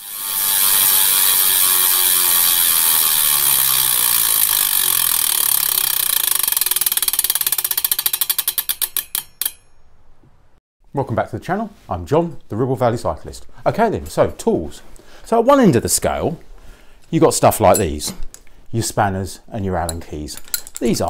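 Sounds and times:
bicycle freewheel ticking: 0.0s - 9.7s.

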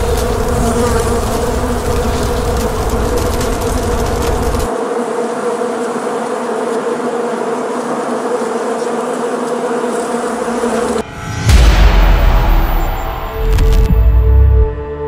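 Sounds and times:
bees buzzing: 0.0s - 11.0s
loud low boom: 11.0s - 14.8s.

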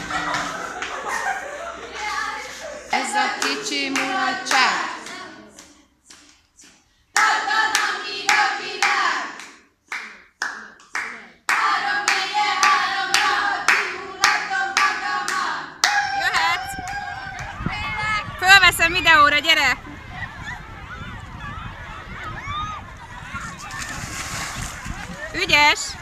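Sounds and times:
group singing: 0.0s - 9.6s, 11.5s - 15.8s
hands clapping: 3.4s - 16.0s.

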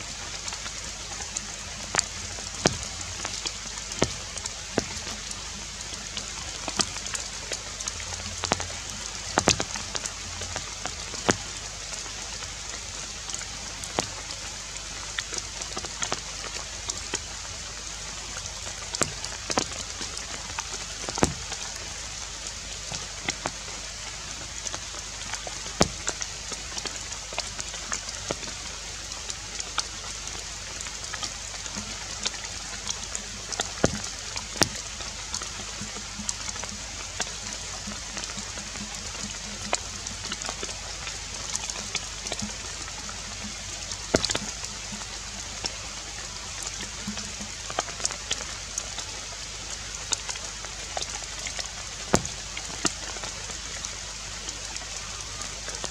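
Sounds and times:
outdoor background hiss: 0.0s - 55.9s
sharp clicks and pops: 25.8s - 27.4s.

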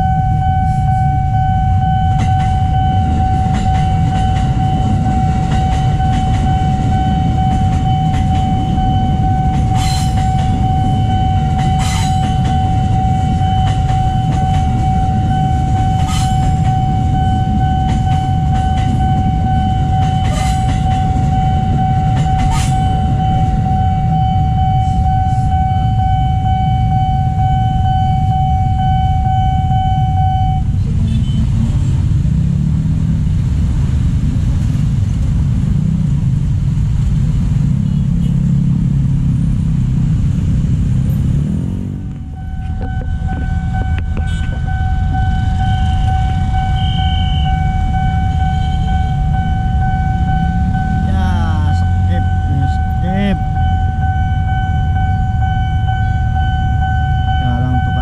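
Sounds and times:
level crossing alarm tone: 0.0s - 31.4s, 41.0s - 58.0s
electric train passing: 0.0s - 58.0s
traffic rumble: 0.0s - 58.0s
motorcycle engines revving: 30.7s - 47.4s, 48.3s - 53.0s.

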